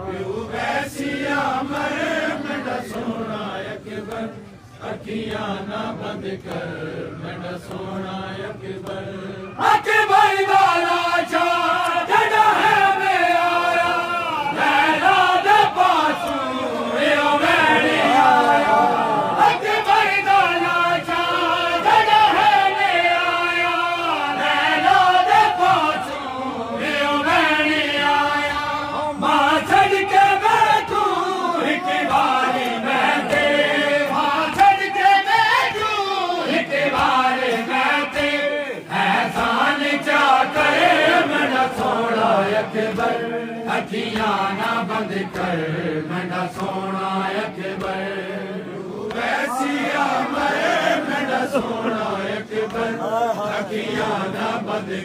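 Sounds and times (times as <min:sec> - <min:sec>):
men chanting in unison: 0:00.0 - 0:55.0
lead reciter on microphone: 0:07.6 - 0:48.6.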